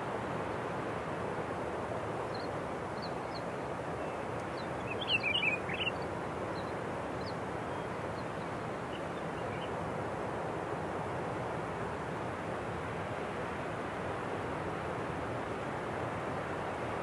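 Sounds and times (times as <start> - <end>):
outdoor background noise: 0.0 - 17.0
small bird chirping: 4.6 - 6.0.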